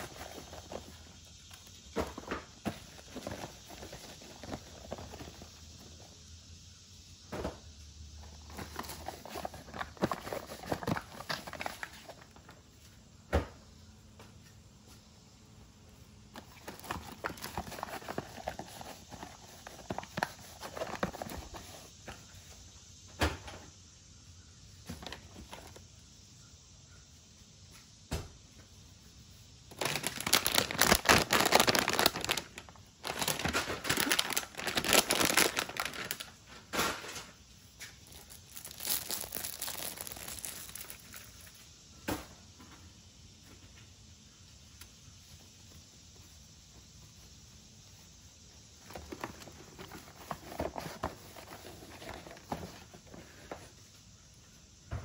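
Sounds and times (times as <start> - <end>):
plastic bags rustling: 0.0 - 6.0, 29.7 - 37.3, 38.0 - 41.5
package crinkling and tearing: 29.7 - 36.4, 38.0 - 41.3.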